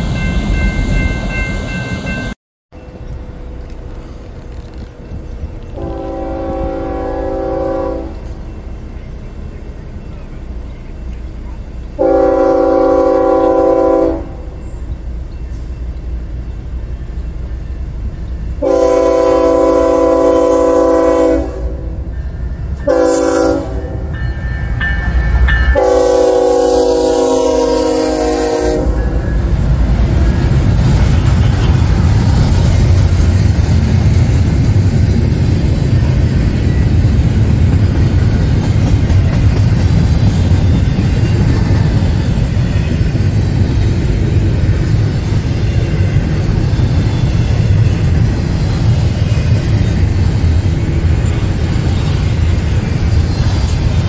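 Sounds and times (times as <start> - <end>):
freight train rumbling past: 0.0 - 54.0
locomotive air horn blasts: 5.7 - 8.3, 12.0 - 14.6, 18.6 - 22.1, 22.8 - 24.2, 25.7 - 29.3.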